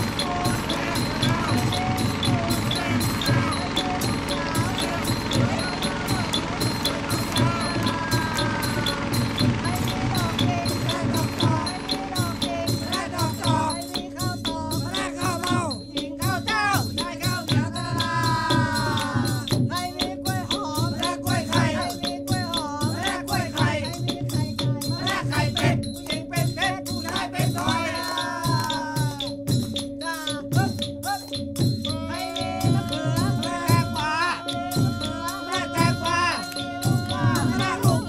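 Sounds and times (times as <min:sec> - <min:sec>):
sliding melody: 0:00.0 - 0:23.8
steady drone: 0:00.0 - 0:23.9, 0:32.0 - 0:38.0
rapid percussion: 0:00.0 - 0:38.0.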